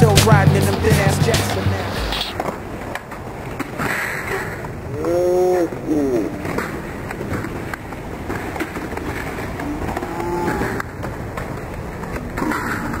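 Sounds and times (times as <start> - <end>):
skateboard wheels rolling on concrete: 0.0 - 13.0
skateboard clacks and knocks: 6.3 - 13.0.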